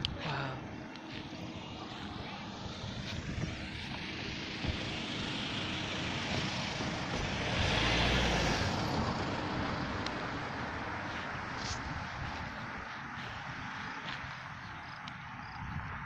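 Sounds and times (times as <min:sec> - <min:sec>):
vehicle driving past: 0:00.0 - 0:14.8.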